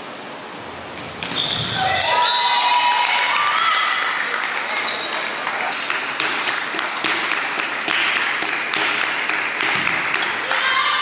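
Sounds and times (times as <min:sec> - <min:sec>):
crowd noise: 0:01.0 - 0:11.0
rhythmic clapping: 0:04.0 - 0:10.5.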